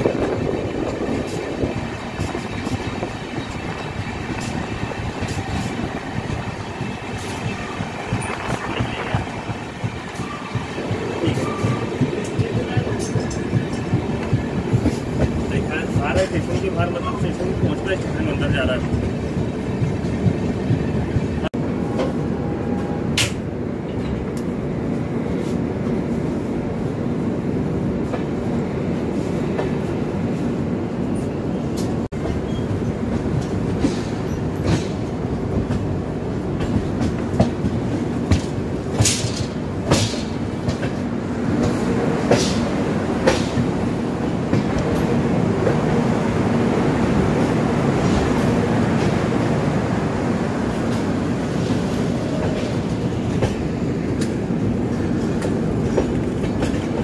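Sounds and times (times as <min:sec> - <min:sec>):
train coaches rumbling: 0:00.0 - 0:57.0
wheels clacking over rail joints: 0:50.8 - 0:57.0.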